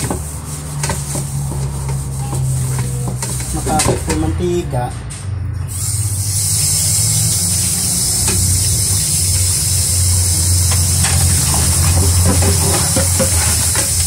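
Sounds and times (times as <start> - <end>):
tap water running onto metal wok: 6.2 - 14.0.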